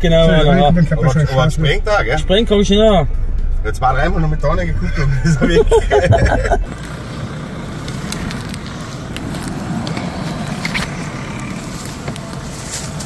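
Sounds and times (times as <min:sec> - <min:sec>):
pickup engine rumbling: 0:00.0 - 0:13.0
faint clicks and crackles: 0:07.8 - 0:13.0.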